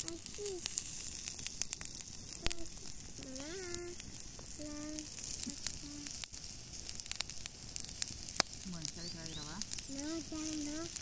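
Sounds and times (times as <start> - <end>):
faint voices calling out: 0.0 - 0.8, 2.4 - 6.2, 8.7 - 11.0
meat sizzling over embers: 0.0 - 11.0
wood fire crackling: 0.0 - 11.0.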